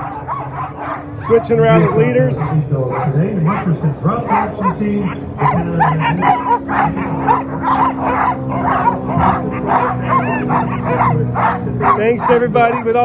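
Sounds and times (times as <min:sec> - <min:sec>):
sled dogs barking and yipping: 0:00.0 - 0:13.0
steady low hum: 0:00.0 - 0:13.0.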